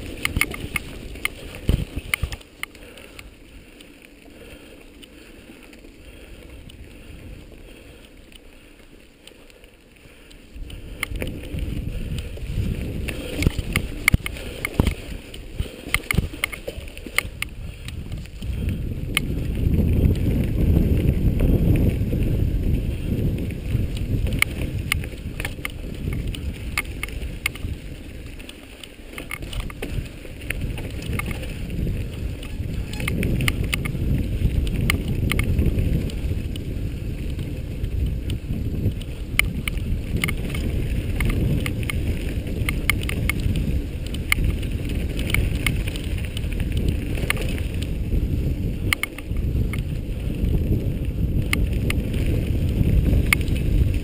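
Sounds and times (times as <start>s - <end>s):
camera clicks and rattles: 0.0s - 3.2s, 10.6s - 18.4s, 23.8s - 36.7s, 38.2s - 48.0s, 48.7s - 54.0s
wind buffeting microphone: 0.0s - 3.7s, 10.0s - 54.0s.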